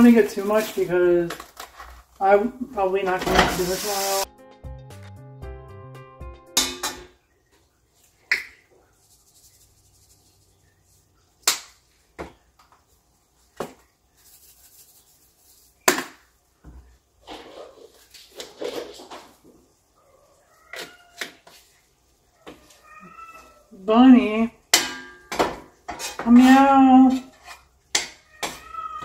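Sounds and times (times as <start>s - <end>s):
shaker jar rattling: 8.9s - 10.7s, 14.1s - 15.8s
utensils clinking on steel pot: 24.7s - 28.7s.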